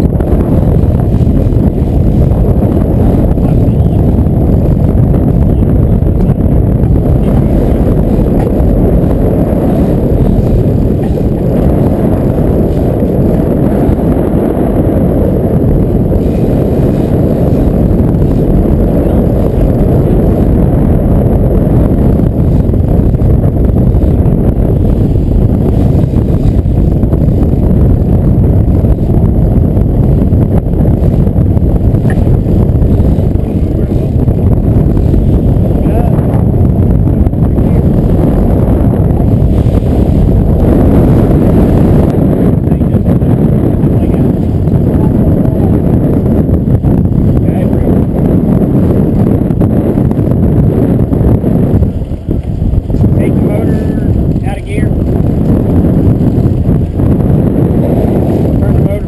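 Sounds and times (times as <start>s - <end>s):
outboard motors running: 0.0s - 59.0s
wind buffeting microphone: 0.0s - 59.0s.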